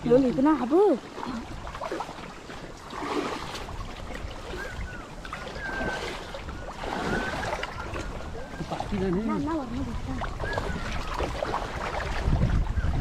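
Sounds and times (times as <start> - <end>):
creek water splashing: 0.0 - 13.0
wind rumble on microphone: 0.0 - 13.0
distant high calls: 4.4 - 8.9.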